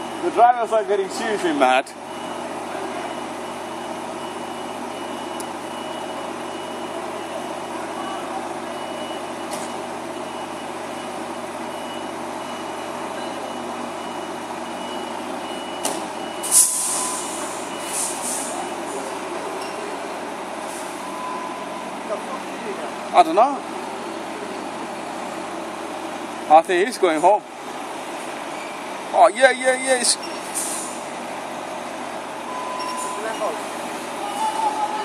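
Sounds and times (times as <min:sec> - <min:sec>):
reversing alarm beeping: 0:00.0 - 0:00.8, 0:02.0 - 0:19.0, 0:19.6 - 0:20.1, 0:21.0 - 0:22.0, 0:29.8 - 0:30.6, 0:32.4 - 0:33.7
diesel engines running: 0:00.0 - 0:35.0
air brakes hissing: 0:15.8 - 0:19.1, 0:30.3 - 0:31.2.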